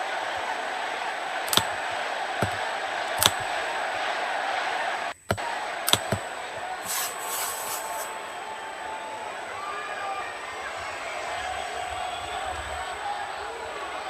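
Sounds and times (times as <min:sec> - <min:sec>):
arena crowd murmur: 0:00.0 - 0:14.0
sharp clicks: 0:01.4 - 0:03.6, 0:05.1 - 0:06.3.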